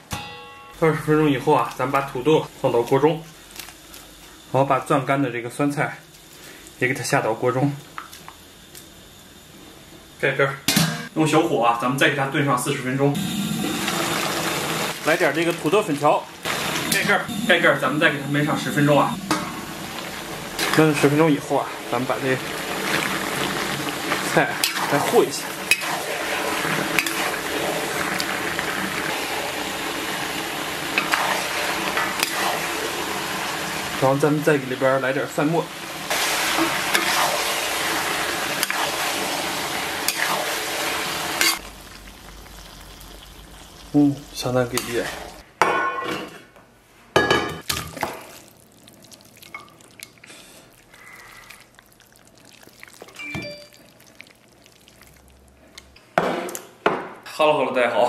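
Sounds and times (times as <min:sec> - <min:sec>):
stew sizzling in a wok: 0:00.8 - 0:45.4
metal pan and lid clanking: 0:45.6 - 0:46.4.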